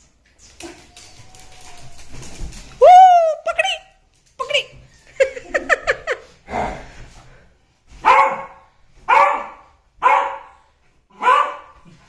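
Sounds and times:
dog yipping and barking: 11.2 - 11.7.

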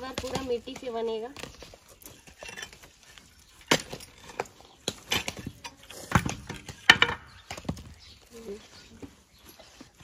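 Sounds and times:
brick chunks clattering: 2.0 - 7.8.

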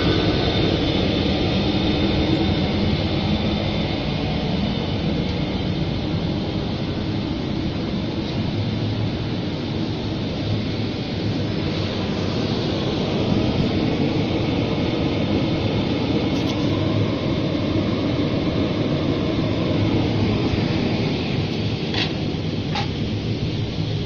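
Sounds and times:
rotary drum dryer running: 0.0 - 24.0.

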